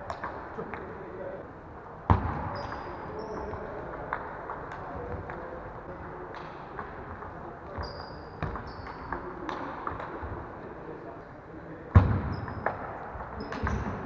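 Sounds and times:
steady hall noise: 0.0s - 14.0s
shoes squeaking on floor: 7.8s - 9.0s.

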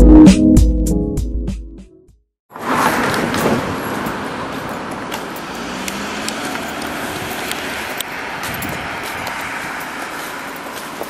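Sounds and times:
road traffic noise: 2.5s - 11.0s.

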